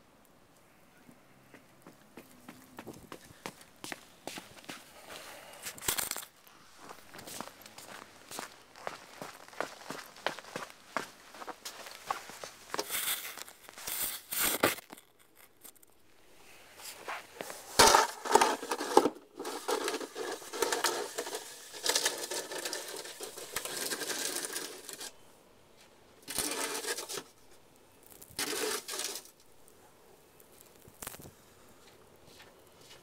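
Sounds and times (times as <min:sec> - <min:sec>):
boots crunching in snow: 0:06.8 - 0:14.1
snow shovel scraping snow: 0:12.1 - 0:14.8, 0:16.5 - 0:25.1, 0:26.3 - 0:27.3, 0:28.4 - 0:29.3.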